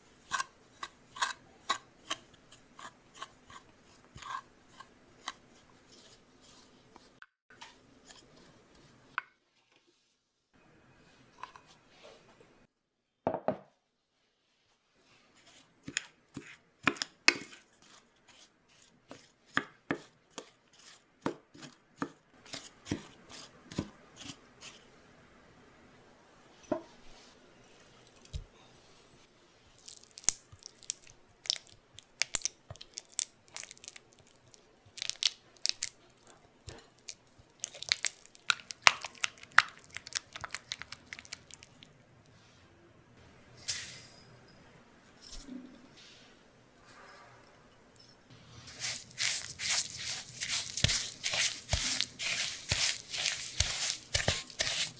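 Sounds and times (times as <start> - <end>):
spatula scraping butter in glass bowl: 0.3 - 6.7, 48.7 - 54.9.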